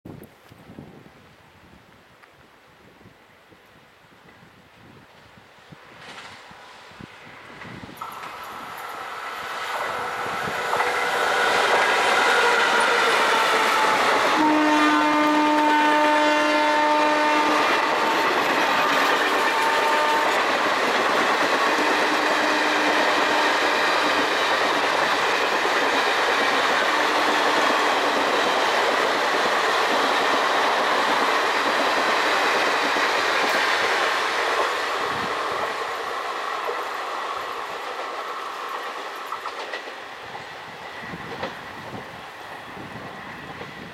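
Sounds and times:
locomotive blowers whining: 8.0 - 35.2
train horn honking: 10.0 - 18.6, 19.3 - 20.6, 21.6 - 24.1, 26.8 - 28.1.

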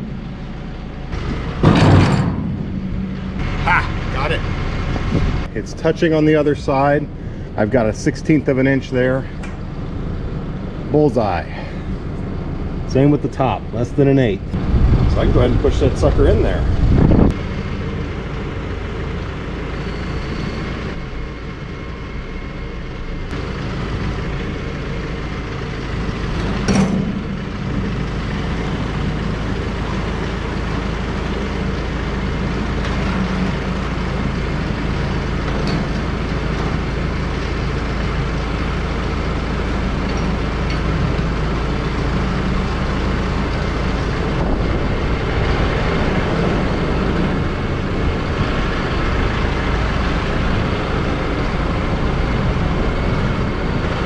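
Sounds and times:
heavy engine running: 0.0 - 54.0
sharp metallic clank: 1.2 - 3.4.

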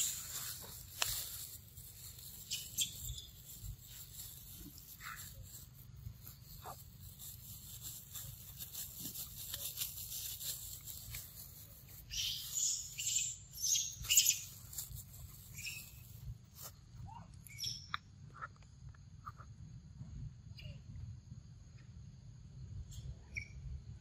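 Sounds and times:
scratchy rustling: 0.0 - 12.7, 14.0 - 16.7.

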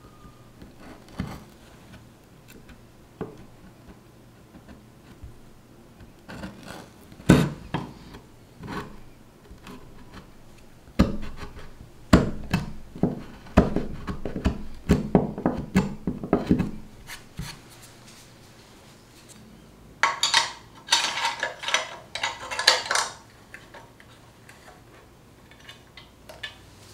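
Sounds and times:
chisel cracking wood: 0.6 - 3.6, 6.0 - 8.0, 11.0 - 16.8.

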